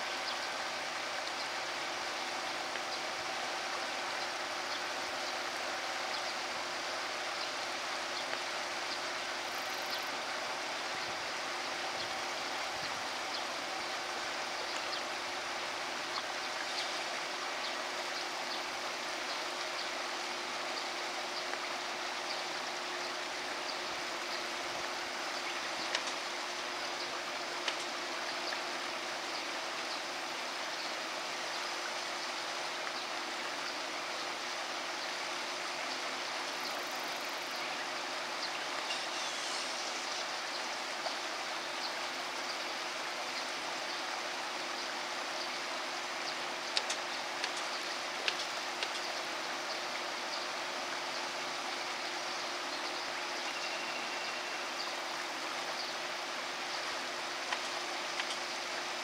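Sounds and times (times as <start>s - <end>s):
stream running over rocks: 0.0s - 59.0s
faint clicks: 46.7s - 49.1s.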